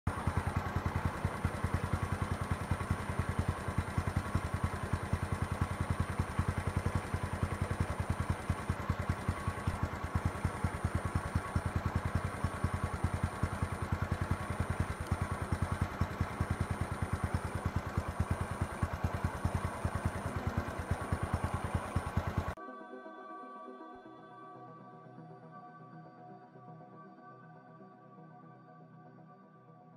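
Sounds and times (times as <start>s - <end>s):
vehicle engine idling: 0.1s - 22.6s.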